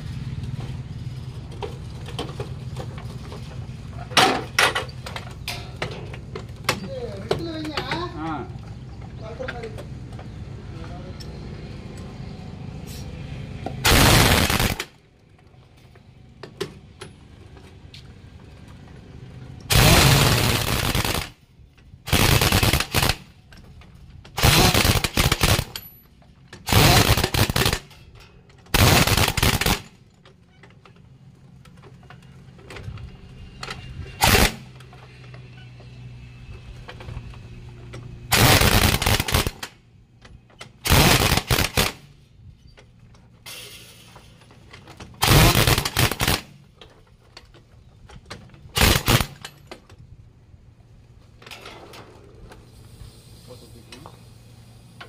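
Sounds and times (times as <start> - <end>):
pneumatic impact wrench hammering: 13.8 - 14.9, 19.6 - 21.4, 22.1 - 23.6, 24.3 - 25.9, 26.5 - 28.1, 28.7 - 30.0, 34.2 - 34.8, 38.3 - 39.8, 40.6 - 42.2, 44.9 - 46.8, 48.6 - 49.8.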